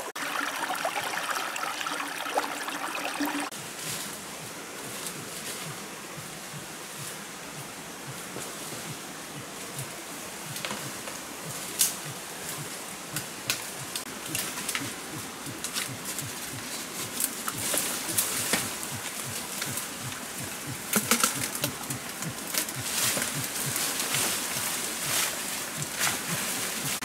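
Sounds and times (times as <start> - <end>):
dry leaves and twigs crackling underfoot: 3.5 - 7.1, 9.6 - 27.0
steady background hiss: 3.5 - 27.0.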